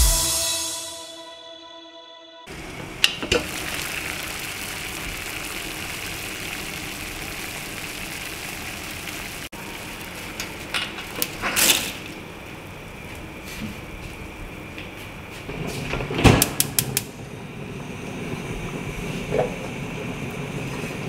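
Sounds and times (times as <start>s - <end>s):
water boiling and bubbling: 2.5s - 15.2s, 16.5s - 21.0s.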